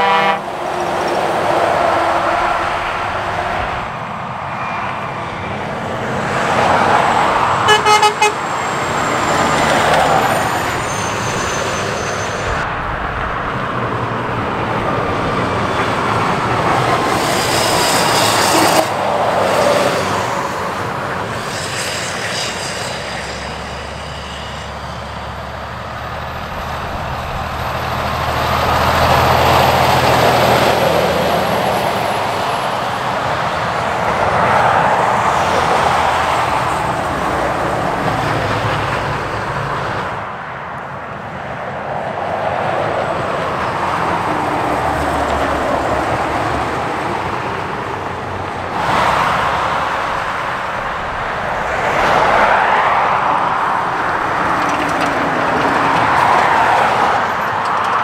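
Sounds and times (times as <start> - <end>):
truck engine drone: 0.0 - 40.2, 42.9 - 58.0
traffic tyre roar: 0.0 - 58.0.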